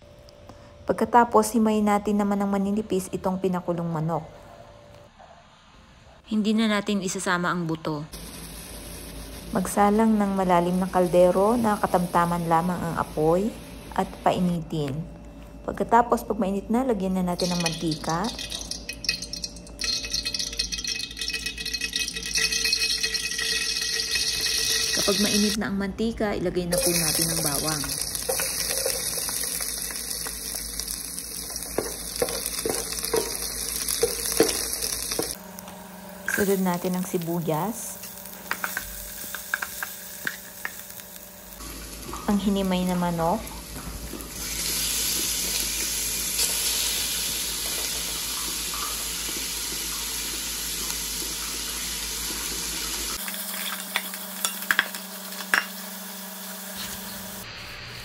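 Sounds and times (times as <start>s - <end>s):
garlic sizzling in hot oil: 8.1s - 14.2s, 17.4s - 25.6s, 26.7s - 35.4s, 36.2s - 57.4s.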